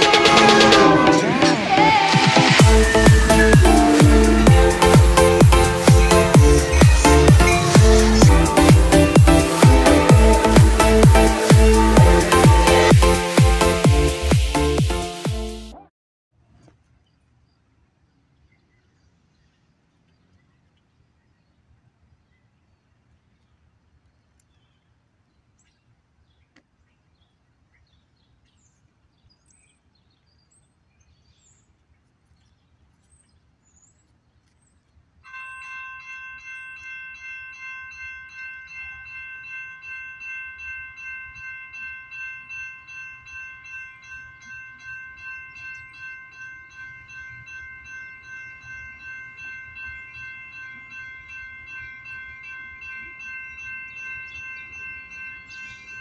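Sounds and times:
railroad crossing bell ringing: 0.0 - 15.8, 35.3 - 56.0.

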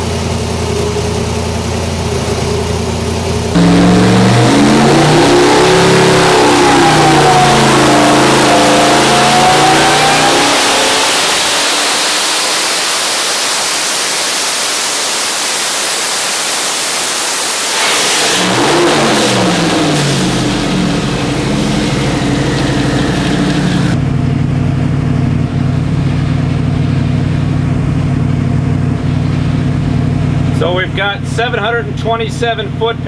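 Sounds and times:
engine idling: 0.0 - 15.5, 16.1 - 33.0
engine revving under load: 3.5 - 14.4, 15.1 - 24.0.

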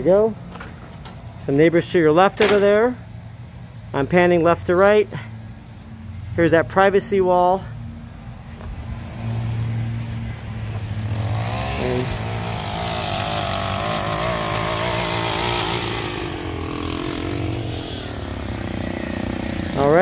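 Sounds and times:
string trimmer engine running: 10.7 - 20.0.

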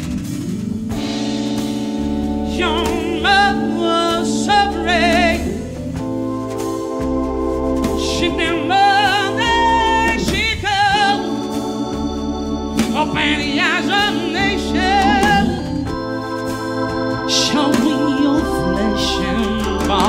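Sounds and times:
drum kit: 0.0 - 20.0
organ chords: 0.0 - 20.0
woman singing with vibrato: 13.0 - 16.0, 17.3 - 20.0.

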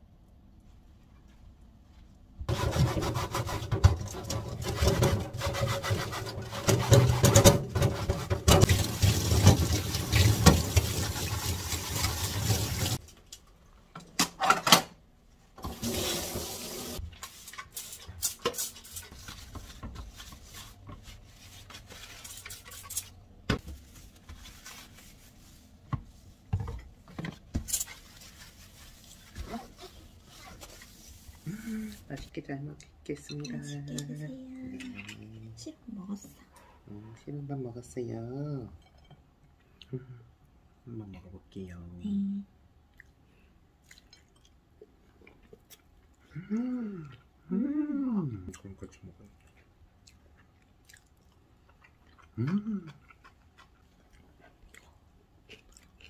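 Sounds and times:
water running from tap: 8.4 - 13.0, 15.6 - 17.0
cloth rubbing on cooktop: 15.6 - 26.6, 27.2 - 32.1
dishes and pots clinking: 38.8 - 39.3.

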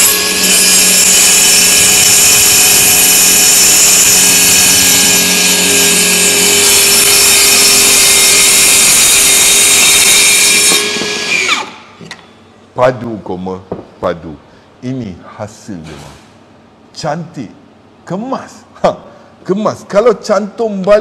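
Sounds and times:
circular saw cutting wood: 0.0 - 11.8.

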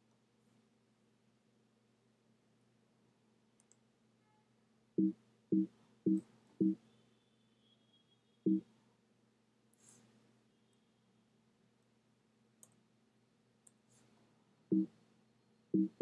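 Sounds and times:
two-tone computer alert beeps: 15.8 - 16.0.

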